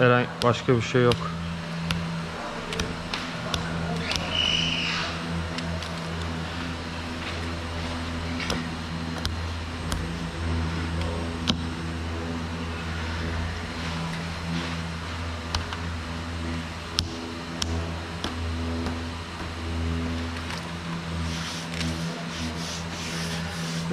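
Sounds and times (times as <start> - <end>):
machine humming: 0.0 - 23.9
sharp clicks and taps: 16.9 - 19.5.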